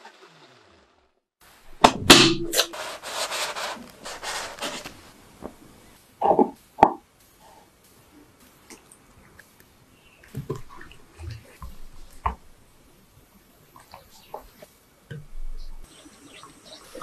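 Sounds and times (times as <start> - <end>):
scraping: 1.8 - 5.2.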